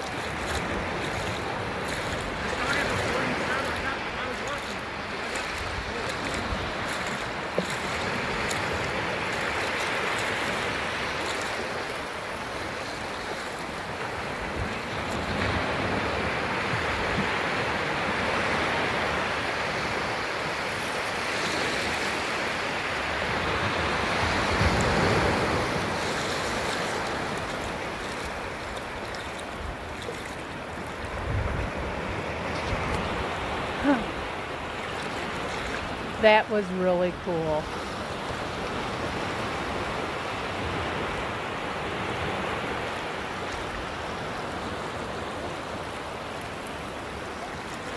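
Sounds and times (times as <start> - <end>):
small surf breaking: 0.0 - 36.4.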